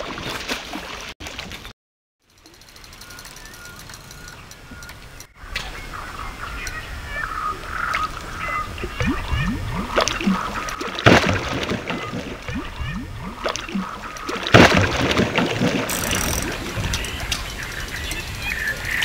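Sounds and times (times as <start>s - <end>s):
loud water splashes: 8.4s - 17.8s
water slaps and gulps: 8.8s - 17.4s.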